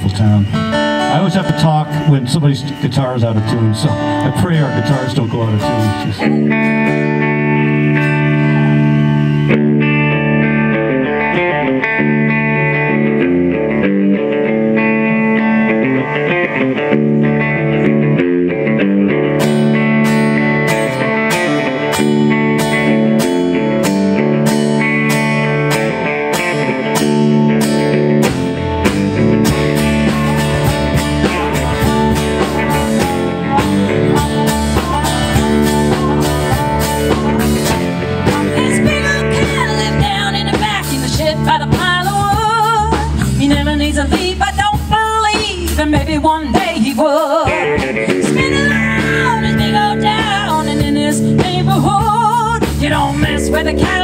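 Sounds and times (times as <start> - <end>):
live blues-rock band playing: 0.0 - 54.0
harmonica: 26.6 - 40.9, 47.5 - 51.4
woman singing lead vocal: 31.4 - 54.0.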